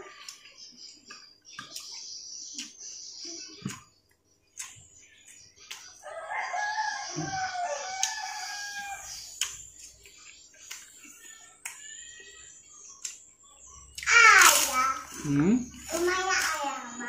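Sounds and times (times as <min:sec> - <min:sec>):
rooster crowing: 0:06.0 - 0:09.2.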